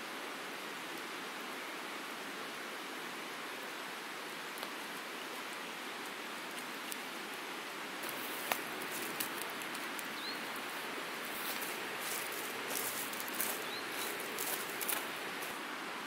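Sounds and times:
river water rushing: 0.3s - 16.0s
campfire wood popping: 8.0s - 15.6s.

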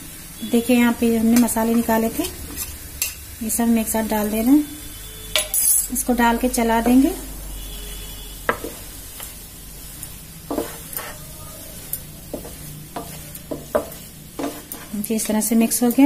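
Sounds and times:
paste sizzling: 0.0s - 16.0s
wooden spatula scraping a pan: 0.5s - 3.1s, 5.6s - 16.0s
spatula knocking against pan: 8.5s - 8.9s, 10.5s - 11.2s, 12.3s - 14.9s.

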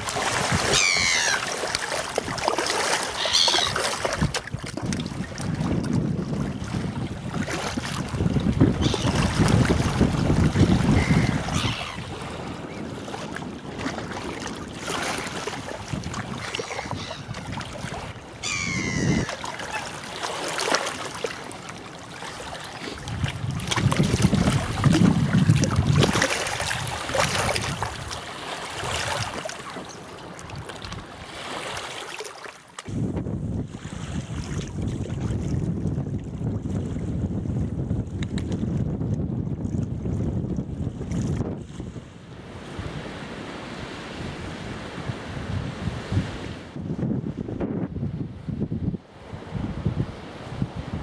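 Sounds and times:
lake waves lapping on stony shore: 0.0s - 33.0s, 33.6s - 37.1s
wind buffeting microphone: 3.6s - 19.8s, 22.4s - 28.2s, 32.9s - 43.2s, 44.1s - 51.0s
short high bird call: 18.4s - 19.3s.

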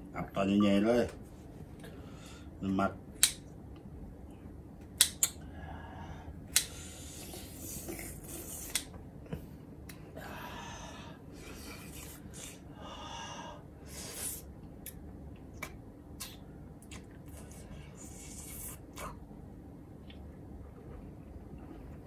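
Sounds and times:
wet mouth clicks and smacks: 15.6s - 17.5s.

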